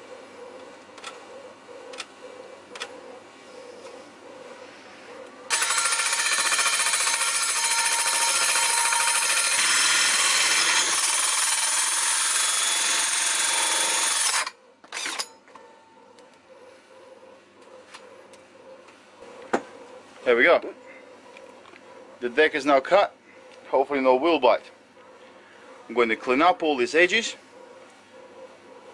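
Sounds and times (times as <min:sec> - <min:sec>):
hole saw cutting whine: 0:05.5 - 0:15.4.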